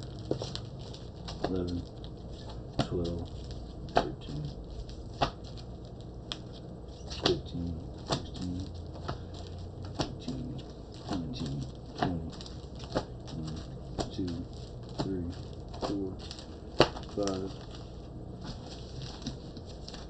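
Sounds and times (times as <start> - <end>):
plastic bags crinkling: 0.0 - 20.0.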